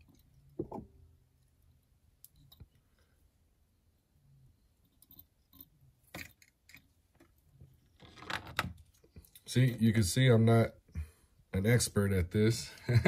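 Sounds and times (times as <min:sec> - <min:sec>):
faint clicks and rustles of thread winding: 0:01.3 - 0:03.4, 0:04.7 - 0:09.8.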